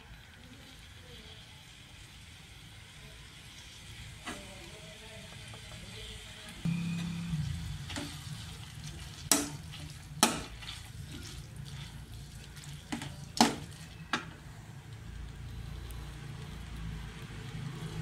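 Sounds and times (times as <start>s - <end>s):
faint frying: 0.0s - 18.0s
steady low hum: 6.6s - 13.4s.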